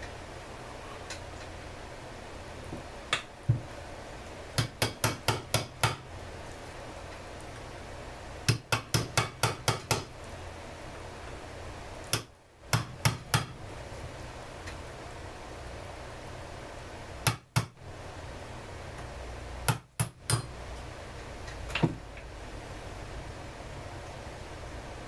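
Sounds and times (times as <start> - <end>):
hammer tapping steel punch: 4.6 - 6.1, 8.5 - 10.1, 12.1 - 13.6, 17.2 - 17.8, 19.7 - 20.5.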